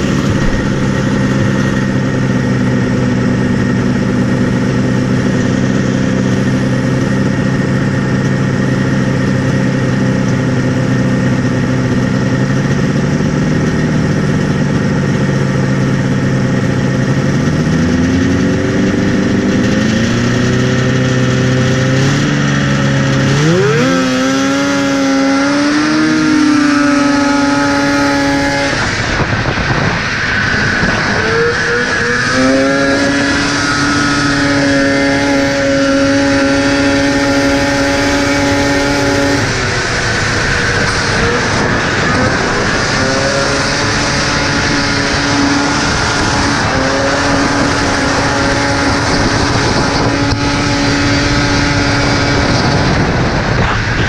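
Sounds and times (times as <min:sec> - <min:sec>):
snowmobile engine idling and revving: 0:00.0 - 0:54.0.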